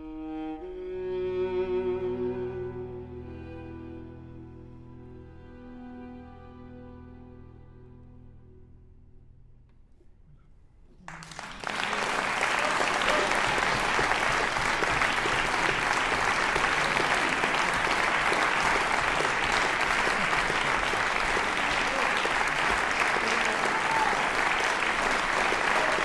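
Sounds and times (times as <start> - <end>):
audience applause: 11.1 - 26.0.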